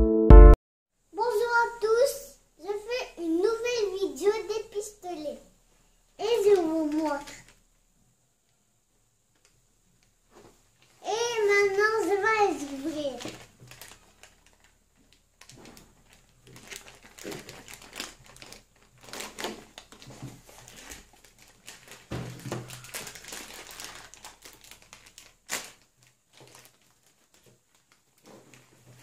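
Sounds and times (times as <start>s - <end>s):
plastic bag crinkling: 6.5s - 7.7s, 10.7s - 29.0s.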